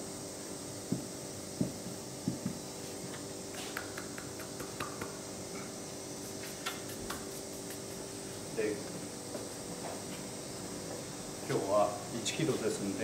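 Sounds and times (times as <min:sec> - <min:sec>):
faint steady hum: 0:00.0 - 0:13.0
hands mixing flour ticks: 0:03.6 - 0:05.3, 0:06.2 - 0:08.4.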